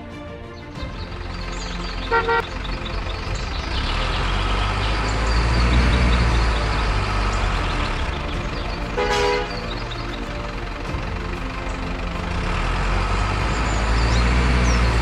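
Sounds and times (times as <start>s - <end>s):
truck engine rumbling: 0.0s - 15.0s
short horn toot: 2.1s - 2.4s.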